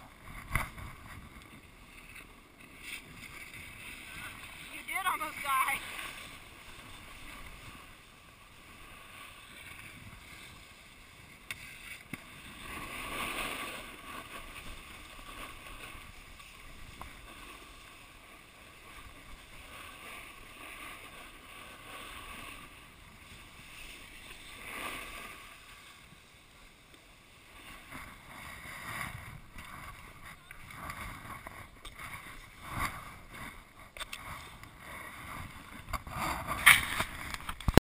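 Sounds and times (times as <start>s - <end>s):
snowboard scraping over snow: 0.0s - 37.3s.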